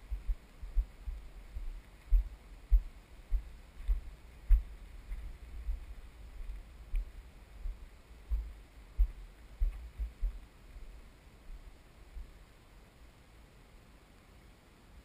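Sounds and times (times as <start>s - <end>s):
footsteps thumping: 1.6s - 5.9s.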